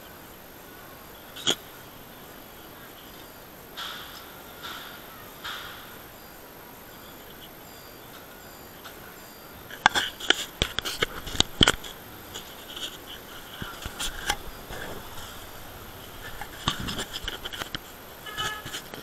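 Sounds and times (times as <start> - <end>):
camera handling noise: 9.9 - 15.3.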